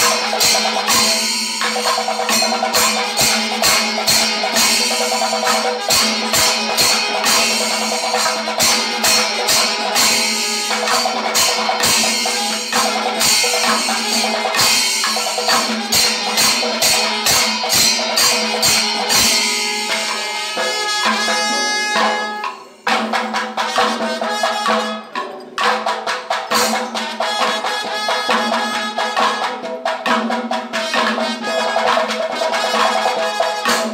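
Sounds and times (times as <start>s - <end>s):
drums and clashing cymbals: 0.0s - 33.9s.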